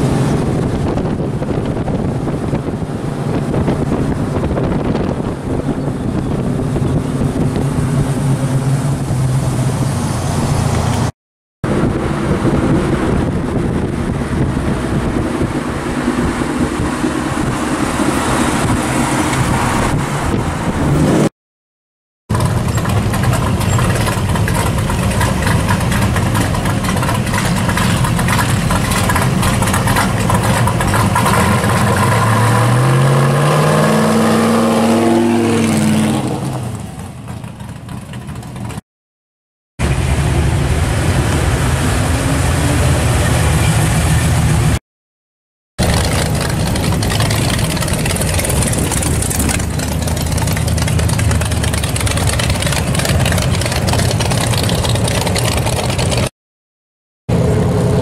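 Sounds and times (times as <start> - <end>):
cars driving by: 0.0 - 21.3, 22.3 - 38.8, 39.8 - 44.8, 45.8 - 56.3, 57.3 - 58.0
car engine revving: 22.3 - 38.8, 45.8 - 56.3.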